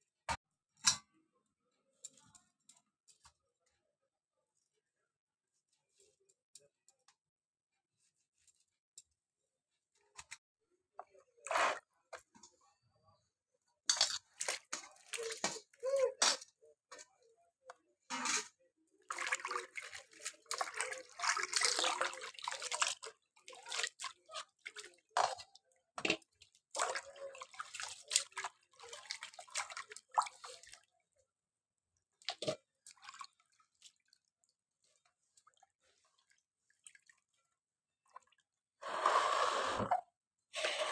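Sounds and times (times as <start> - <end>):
hands splashing in water: 19.1 - 25.0.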